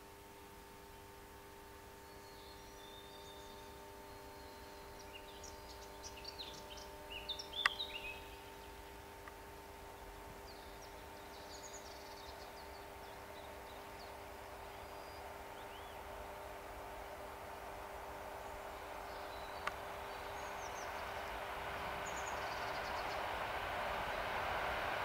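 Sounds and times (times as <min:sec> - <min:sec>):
faint steady hum: 0:00.0 - 0:25.0
small birds chirping: 0:01.9 - 0:24.4
distant electric train rumble: 0:07.9 - 0:25.0.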